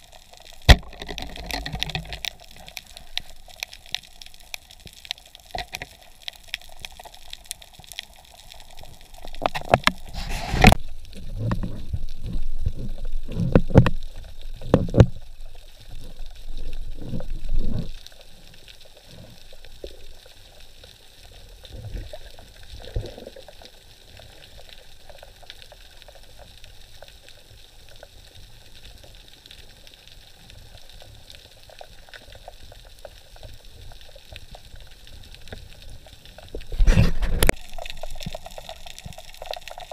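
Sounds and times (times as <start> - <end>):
underwater gurgling and rushing: 0.0 - 39.9
sharp underwater clicks: 0.1 - 18.1.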